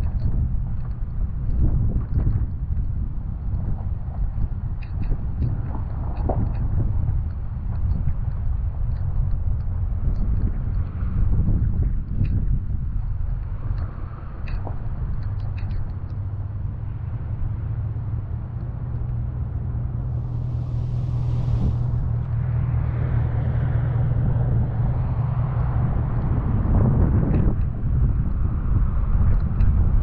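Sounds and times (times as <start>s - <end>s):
wind buffeting microphone: 0.0s - 30.0s
faint clicks: 13.3s - 16.4s
brief hiss: 20.2s - 22.3s.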